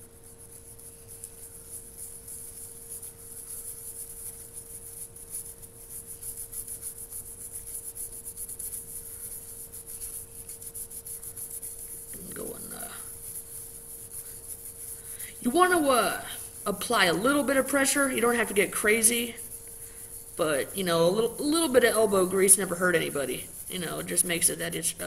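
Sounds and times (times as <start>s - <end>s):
toothbrush scrubbing metal blade: 6.0s - 25.0s.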